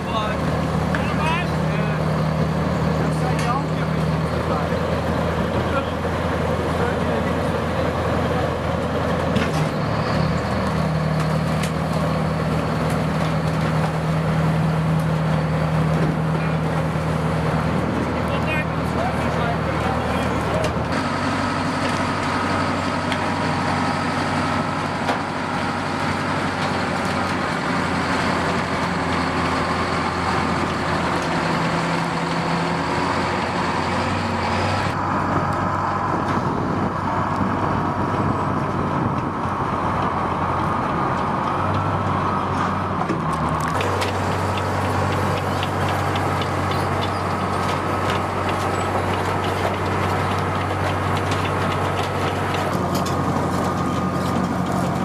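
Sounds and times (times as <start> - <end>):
engine low drone: 0.0 - 55.0
tracks clicking and clanking: 0.0 - 55.0.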